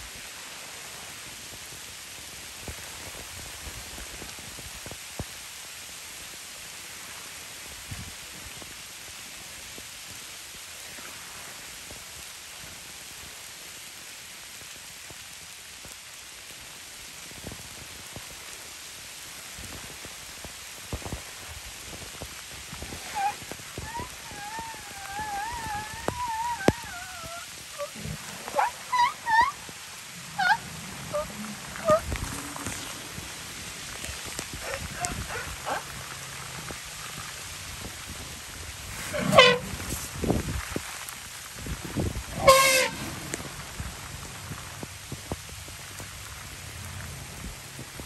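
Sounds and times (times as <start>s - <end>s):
raindrops striking close by: 0.0s - 48.0s
steady rain falling: 0.0s - 48.0s
elephant squeaking: 23.0s - 29.6s, 30.4s - 32.0s.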